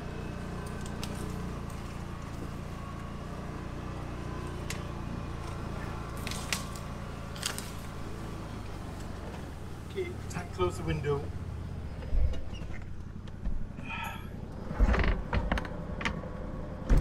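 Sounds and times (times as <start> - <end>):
twigs brushing against vehicle: 0.0 - 11.3
engine running from inside cab: 0.0 - 17.0.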